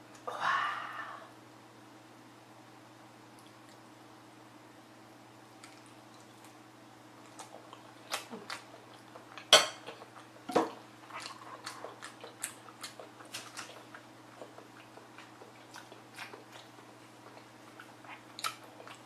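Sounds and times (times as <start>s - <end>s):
wet chewing and mouth clicks: 5.6s - 6.6s, 7.2s - 19.0s.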